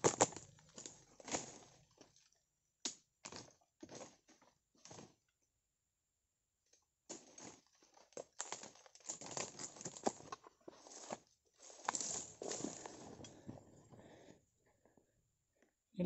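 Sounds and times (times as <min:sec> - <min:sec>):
crunching of dry debris: 0:00.0 - 0:05.2, 0:07.1 - 0:14.3.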